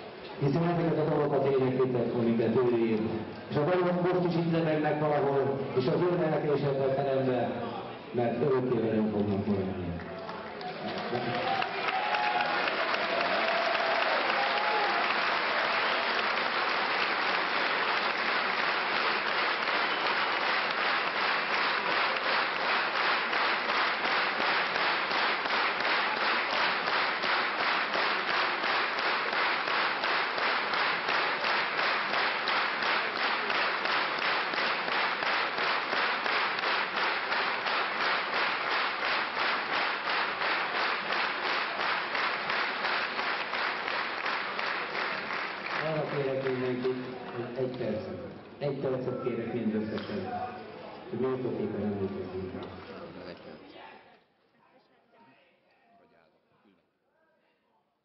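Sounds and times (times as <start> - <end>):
audience applauding: 10.0 - 47.8.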